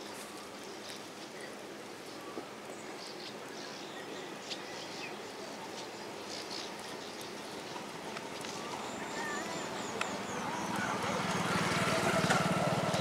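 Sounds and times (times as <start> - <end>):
outdoor hiss: 0.0 - 13.0
birds chirping: 0.6 - 13.0
insects calling: 2.9 - 13.0
faint clicks: 9.9 - 11.4.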